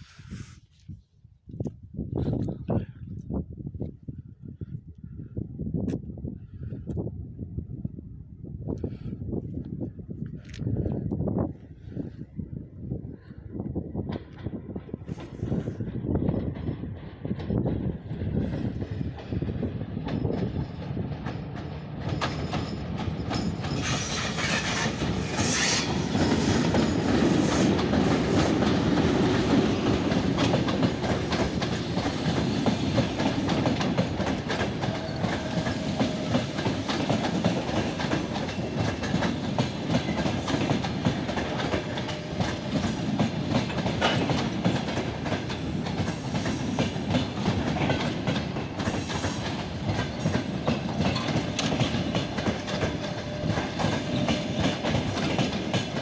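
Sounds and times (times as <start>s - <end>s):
train coaches rumbling past: 14.0s - 56.0s
electric locomotive passing: 14.2s - 56.0s
wheels clicking over rail joints: 16.3s - 56.0s.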